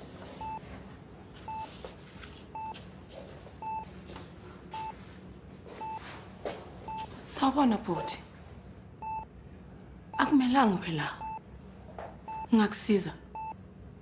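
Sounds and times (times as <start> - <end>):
heart-rate monitor beeping: 0.4 - 0.6, 1.5 - 1.7, 2.5 - 2.8, 3.6 - 4.0, 4.8 - 5.0, 5.8 - 6.0, 6.9 - 7.1, 9.0 - 9.3, 11.2 - 11.4, 12.2 - 12.5, 13.3 - 13.6.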